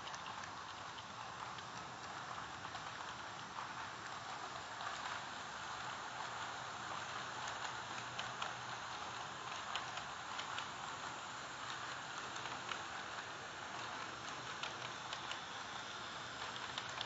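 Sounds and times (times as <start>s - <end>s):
model trains rolling: 0.0s - 17.0s
faint clicks: 9.5s - 15.5s, 16.4s - 17.0s.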